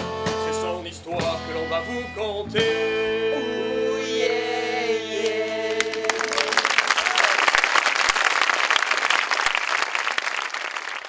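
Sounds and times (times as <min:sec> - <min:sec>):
singers holding a chord: 0:00.0 - 0:07.0
audience applause: 0:05.8 - 0:11.0.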